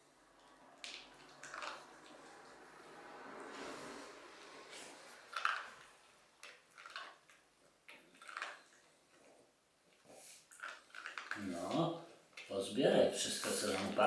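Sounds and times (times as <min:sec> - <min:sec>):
dog crunching dry kibble: 0:00.8 - 0:02.3, 0:05.3 - 0:12.5.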